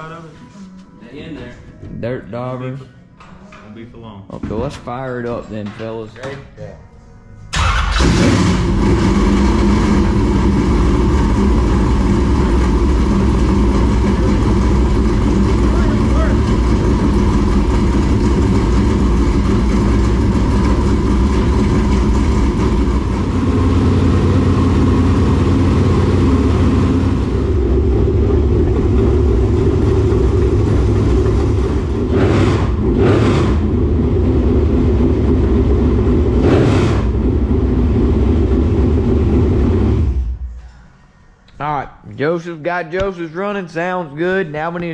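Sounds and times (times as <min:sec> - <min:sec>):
race car engine running: 0:07.6 - 0:40.4.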